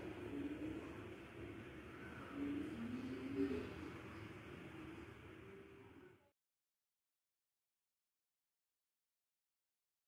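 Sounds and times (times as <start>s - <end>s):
faint background music: 0.0s - 6.4s.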